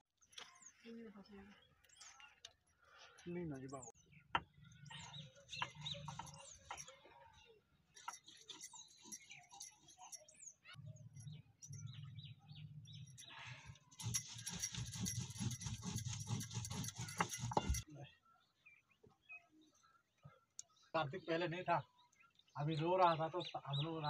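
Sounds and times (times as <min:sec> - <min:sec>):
stone grinding on stone: 0:04.8 - 0:07.0, 0:08.0 - 0:10.4, 0:11.0 - 0:17.8.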